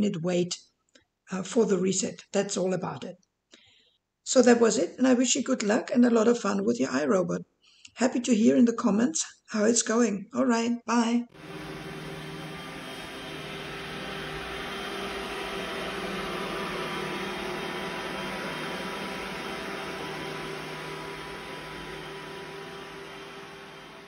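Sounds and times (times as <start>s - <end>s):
humming tones: 11.4s - 24.0s
robot vacuum whirring: 11.4s - 24.0s.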